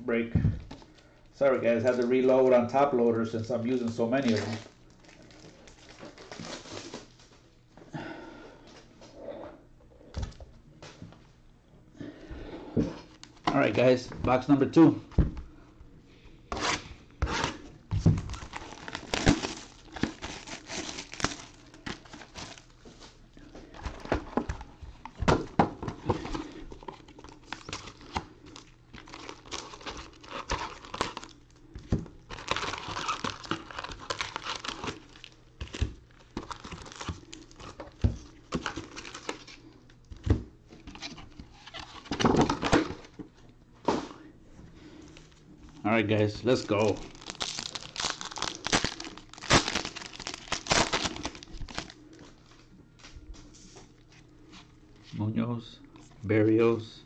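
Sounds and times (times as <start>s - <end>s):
foil packs crinkling and tearing: 3.6s - 7.3s, 16.6s - 25.1s, 26.0s - 39.8s, 45.1s - 52.2s.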